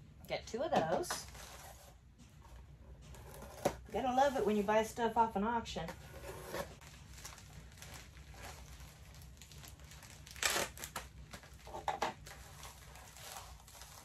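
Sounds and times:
plastic bag crinkling: 0:06.8 - 0:14.0
plastic bag ripping: 0:06.8 - 0:14.0.

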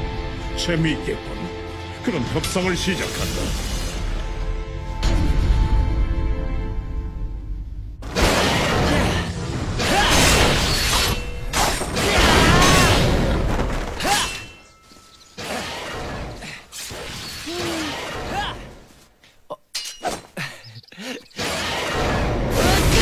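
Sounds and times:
crashing and shattering impacts: 0:08.0 - 0:16.4.

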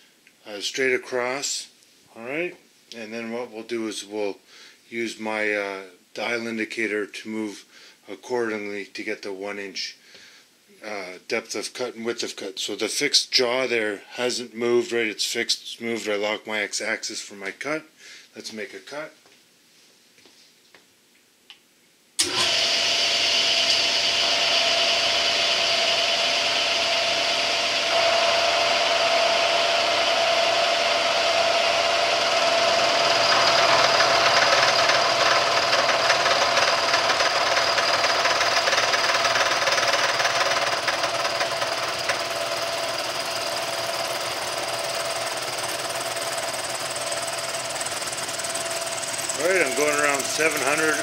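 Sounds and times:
milling machine whining: 0:22.2 - 0:51.0.

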